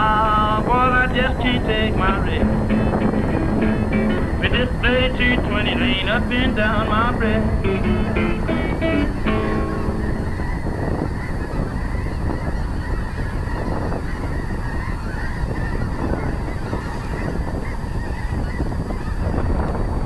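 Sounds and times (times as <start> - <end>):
low background noise: 0.0 - 10.6
geese honking: 0.3 - 18.7.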